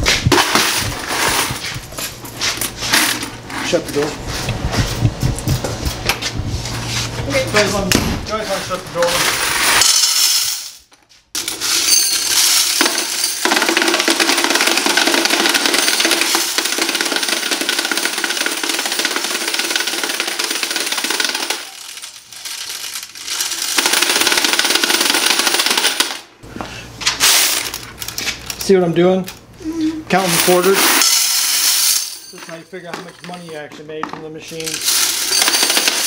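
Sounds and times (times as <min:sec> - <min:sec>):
coins rattling through coin counter: 0:00.3 - 0:03.8, 0:09.0 - 0:26.2, 0:27.2 - 0:28.7, 0:30.1 - 0:33.7, 0:34.5 - 0:36.0.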